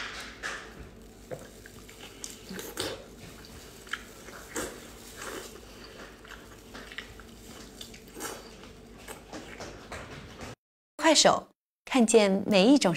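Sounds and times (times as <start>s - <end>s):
person chewing and slurping: 0.9s - 9.6s.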